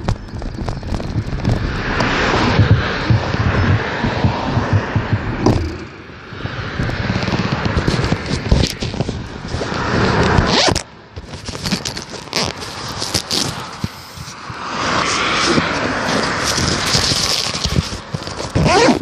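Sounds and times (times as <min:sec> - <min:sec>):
zipper pulled: 0:10.1 - 0:14.4, 0:15.4 - 0:19.0.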